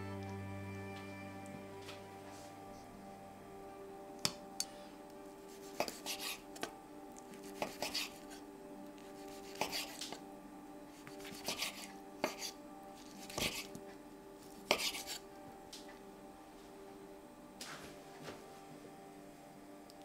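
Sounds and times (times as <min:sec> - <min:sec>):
soft background music: 0:00.0 - 0:20.0.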